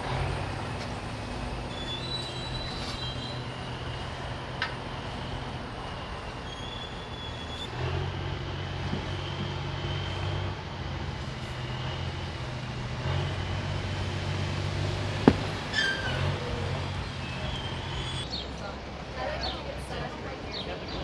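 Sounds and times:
vehicle humming: 7.6 - 18.2.

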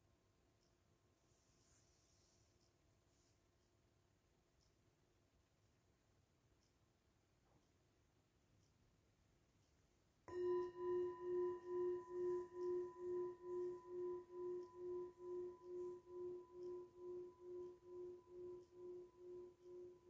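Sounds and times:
metal singing bowl ringing: 10.3 - 20.0.

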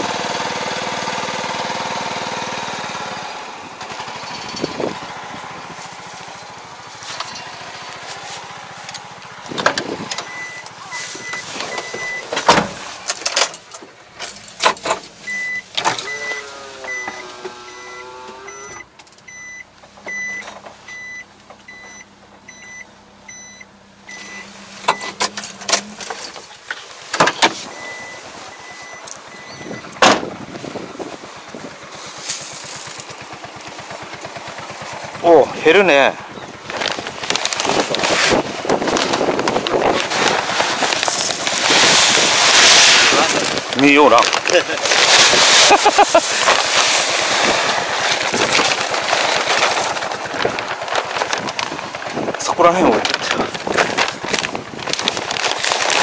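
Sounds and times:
tractor engine running: 0.0 - 56.0
truck engine: 0.0 - 56.0
door and body clunks: 9.5 - 13.6, 28.8 - 30.4
electronic warning beeps: 10.2 - 12.3, 15.3 - 25.2, 27.8 - 29.9.

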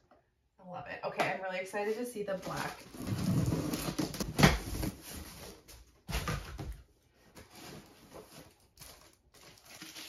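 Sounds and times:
packaging rustling and scraping: 2.3 - 10.0.

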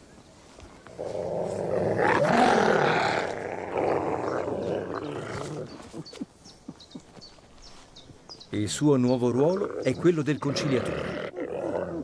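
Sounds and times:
wolves snarling and growling: 1.0 - 6.1, 9.4 - 12.0.

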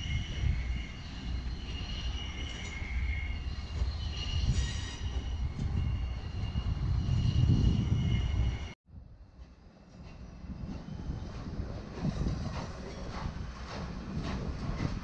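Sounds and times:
wheel flanges squealing: 0.0 - 8.8
steam locomotive rumble: 9.4 - 15.0.

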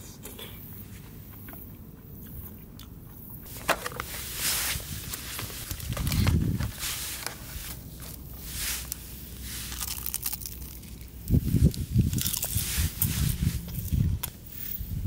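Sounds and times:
crunching and crinkling handling: 3.4 - 14.4.

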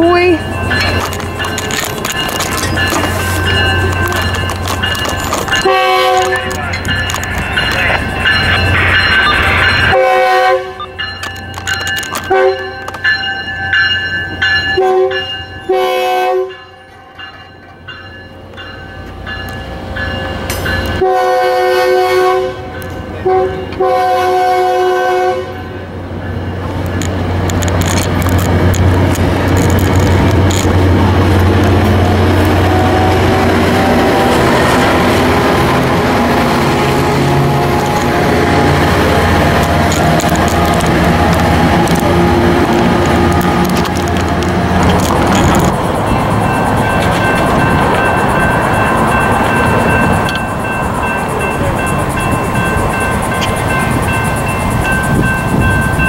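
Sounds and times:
diesel locomotive rumbling: 0.0 - 56.0
train wheels on rails: 0.0 - 56.0
train horn blasts: 5.6 - 6.6, 9.9 - 10.9, 12.3 - 12.8, 14.8 - 16.8, 21.0 - 25.8.

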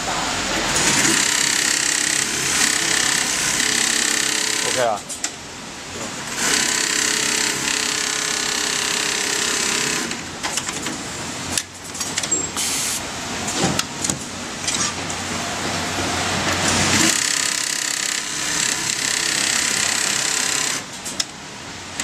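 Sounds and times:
sewing machine humming: 0.7 - 5.0, 6.2 - 10.3, 16.6 - 20.9.

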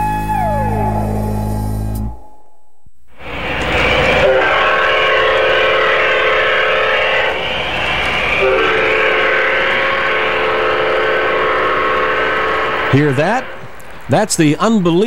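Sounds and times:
model train diesel horn: 3.9 - 7.4, 8.3 - 13.8.

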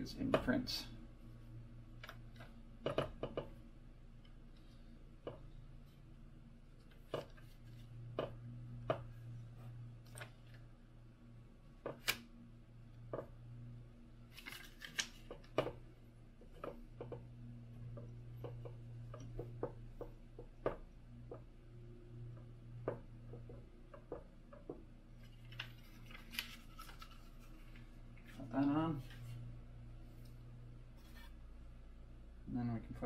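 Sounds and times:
steady low hum: 0.0 - 33.0
paper rustling: 14.3 - 15.5, 25.2 - 29.4.

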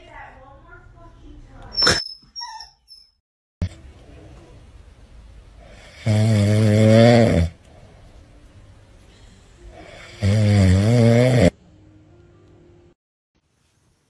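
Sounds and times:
cat snoring: 5.6 - 7.6, 9.7 - 11.5.

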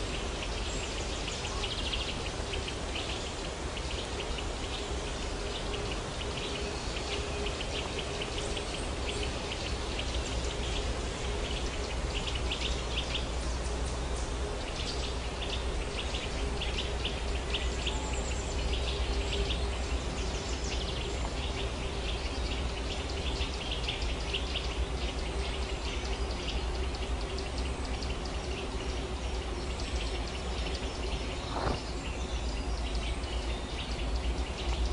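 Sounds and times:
constant rushing noise: 0.0 - 34.9.

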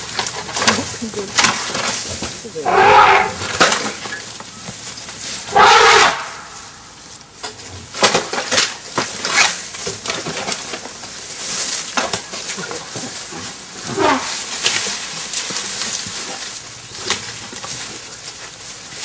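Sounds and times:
branches cracking and snapping: 0.0 - 6.9, 7.8 - 19.0
elephant cry: 2.4 - 4.3, 5.4 - 6.9, 13.4 - 14.5.

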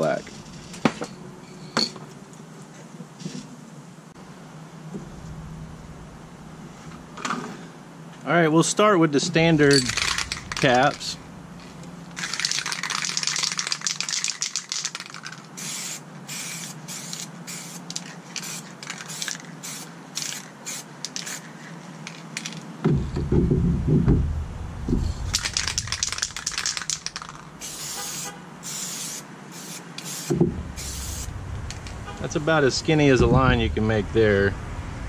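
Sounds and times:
low rumble: 4.9 - 7.3, 9.3 - 12.1, 22.9 - 26.5, 30.4 - 35.0
spray paint can hissing: 9.8 - 22.6, 25.3 - 31.8.

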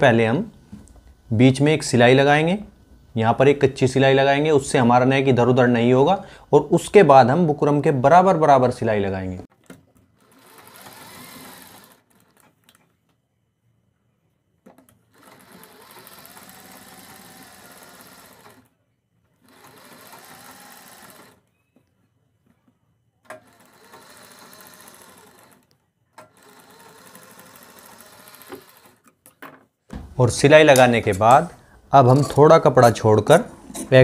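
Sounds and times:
sewing machine stitching: 10.1 - 12.8, 14.8 - 18.7, 19.4 - 21.5, 23.3 - 29.1.

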